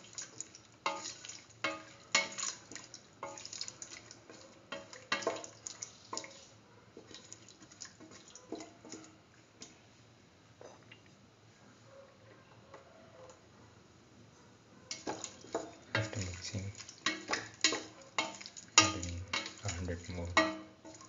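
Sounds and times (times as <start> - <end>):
wet sloshing: 0.0 - 6.5, 14.9 - 21.0
spatula knocking and scraping pot: 0.8 - 9.1, 14.9 - 21.0.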